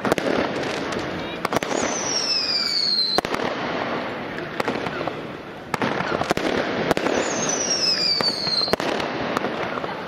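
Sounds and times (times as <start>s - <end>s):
firework bangs: 0.0s - 10.0s
firework whistle gliding down: 1.6s - 3.2s, 7.1s - 8.8s.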